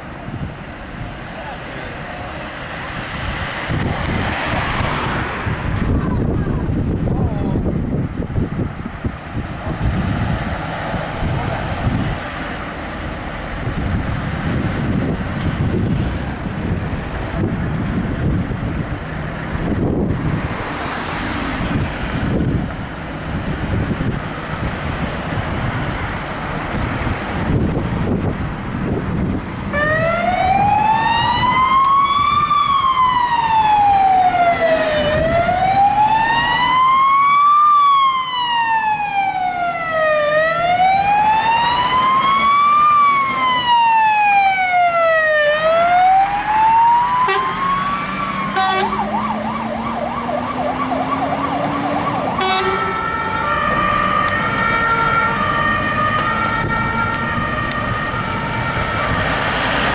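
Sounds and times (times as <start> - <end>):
fire engine siren: 9.7 - 22.8, 29.2 - 59.9.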